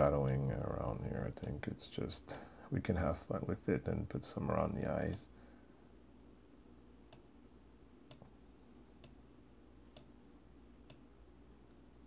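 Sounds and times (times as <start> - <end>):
low room hum: 0.0 - 12.0
faint sharp clicks: 1.4 - 1.6.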